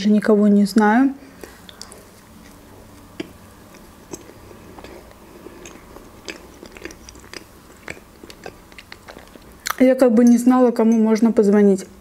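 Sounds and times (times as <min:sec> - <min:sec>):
person chewing with mouth clicks: 0:01.4 - 0:09.8.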